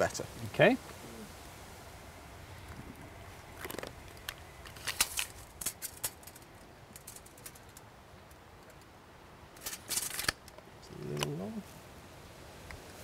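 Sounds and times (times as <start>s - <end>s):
small clicks and metallic scrapes: 3.6s - 8.9s, 9.6s - 11.4s.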